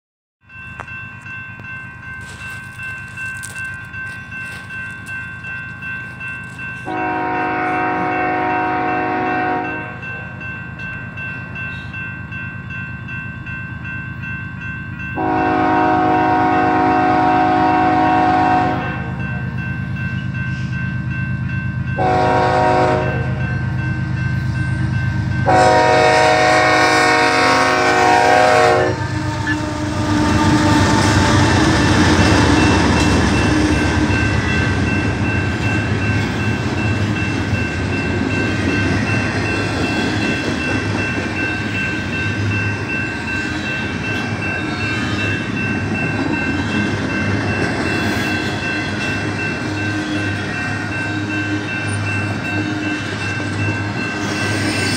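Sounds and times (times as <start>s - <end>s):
crossing warning bell ringing: 0.4s - 54.9s
locomotive air horn: 6.9s - 10.0s, 15.2s - 19.1s, 22.0s - 23.4s, 25.4s - 31.6s.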